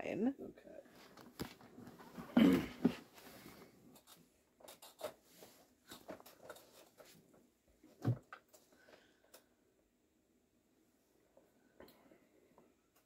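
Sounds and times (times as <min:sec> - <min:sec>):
clothing rustling: 0:00.9 - 0:09.1.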